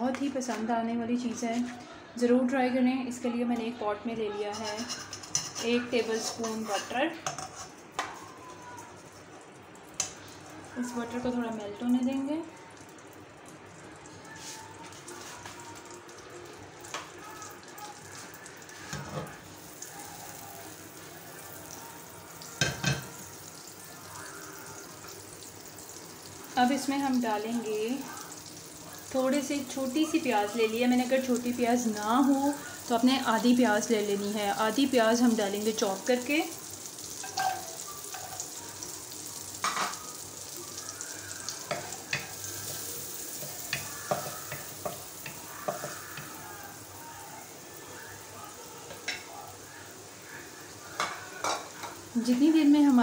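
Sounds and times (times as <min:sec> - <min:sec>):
butter sizzling in a pan: 0:04.5 - 0:53.0
spoon tapping pot: 0:37.2 - 0:38.4, 0:41.7 - 0:46.4, 0:51.0 - 0:52.0.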